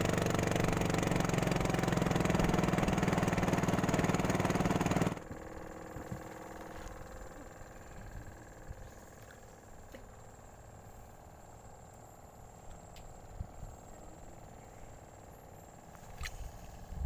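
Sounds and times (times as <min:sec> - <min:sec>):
small engine droning: 0:00.0 - 0:17.0.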